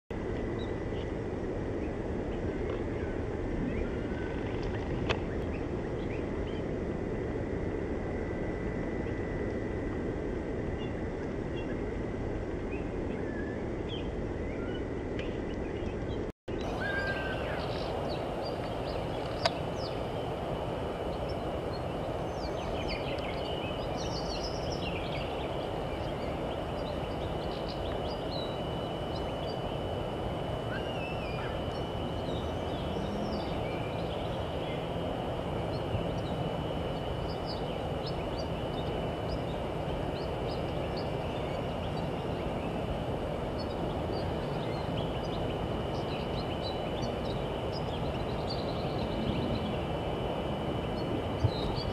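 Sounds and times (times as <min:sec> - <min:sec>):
low outdoor background noise: 0:00.1 - 0:51.9
faint high-pitched whine: 0:00.2 - 0:51.9
bird calls and chirps: 0:12.7 - 0:20.3, 0:30.6 - 0:34.9.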